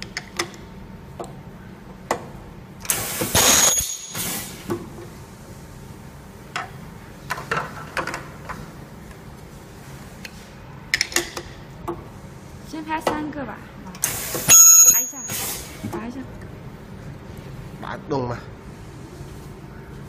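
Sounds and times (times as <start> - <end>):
welding machine hissing whine: 2.8 - 5.8, 14.0 - 15.8.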